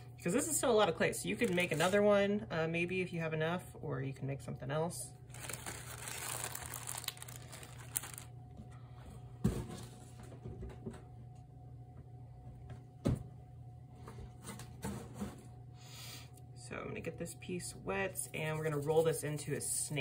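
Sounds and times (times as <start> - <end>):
plastic bag rustling: 1.3 - 2.1, 5.3 - 8.3.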